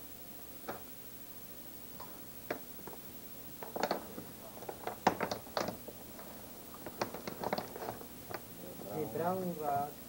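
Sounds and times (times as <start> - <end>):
wooden rods clicking and clattering: 2.5 - 9.1.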